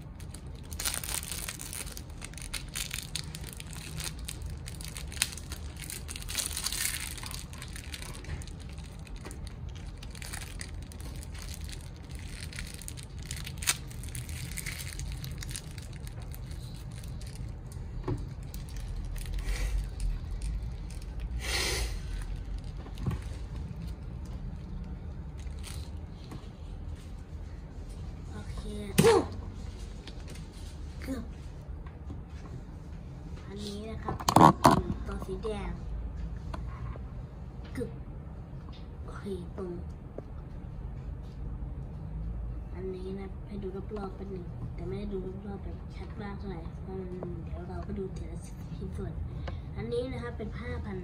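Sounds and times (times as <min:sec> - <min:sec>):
plastic packaging crinkling: 0:00.0 - 0:21.4, 0:22.0 - 0:26.3.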